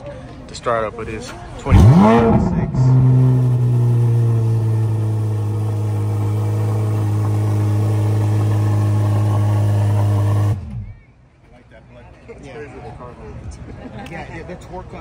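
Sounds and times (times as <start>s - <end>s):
car engine idling loud: 1.7s - 10.8s.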